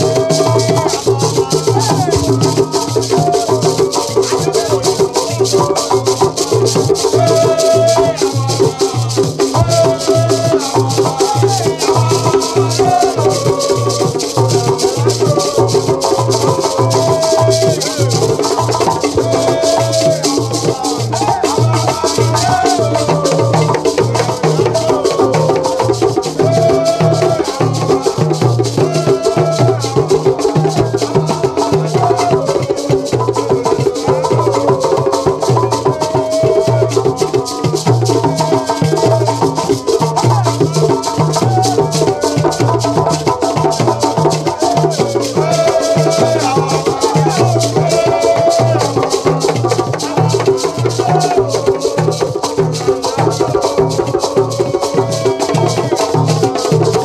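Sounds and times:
frame drums beating: 0.0s - 57.0s
gourd shaker rattling: 0.0s - 57.0s
men singing together: 0.0s - 57.0s.

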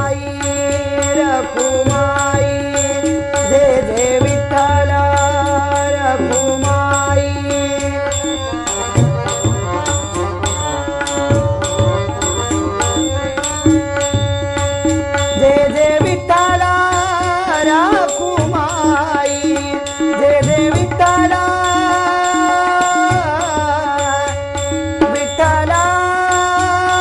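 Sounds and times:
harmonium chords: 0.0s - 27.0s
man singing: 0.0s - 27.0s
hand drum beat: 1.2s - 27.0s
hand cymbals: 5.1s - 16.0s.

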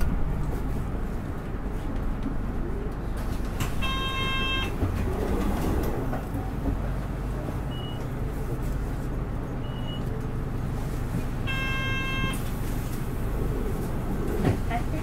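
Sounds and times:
bus diesel engine drone: 0.0s - 15.0s.

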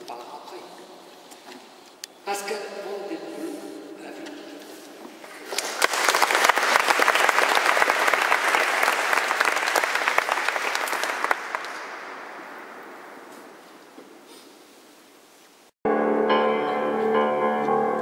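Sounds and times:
audience applauding: 5.4s - 13.3s.

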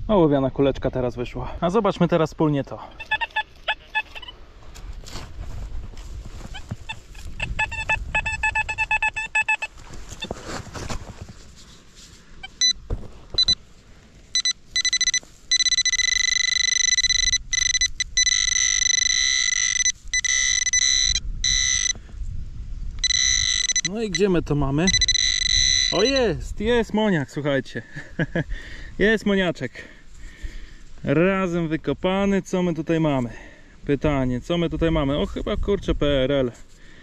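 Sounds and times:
high steady electronic tone: 2.9s - 4.3s, 6.9s - 9.8s, 12.4s - 12.8s, 13.4s - 13.6s, 14.3s - 22.0s, 23.0s - 26.4s
pulsed electronic beeps: 3.0s - 4.3s, 7.4s - 9.8s, 13.4s - 13.6s, 14.4s - 22.0s, 23.0s - 26.3s
low scuffing in soil: 4.6s - 7.3s, 9.7s - 14.3s.

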